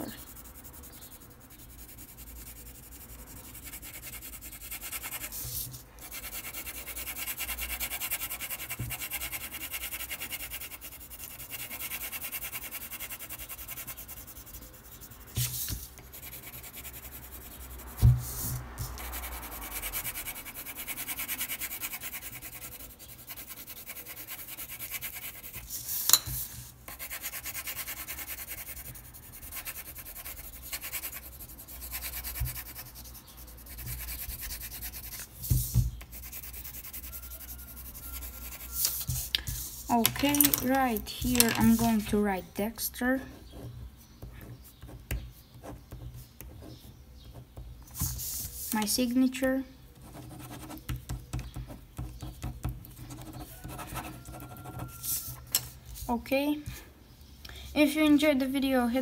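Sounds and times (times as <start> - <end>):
pencil scratching on paper: 0.0 - 42.4, 50.0 - 55.4.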